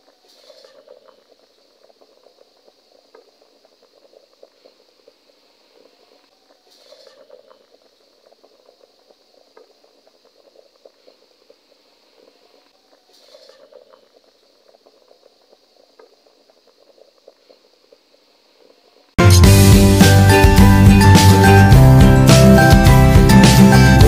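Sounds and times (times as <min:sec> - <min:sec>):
water boiling and bubbling: 0:00.0 - 0:19.2.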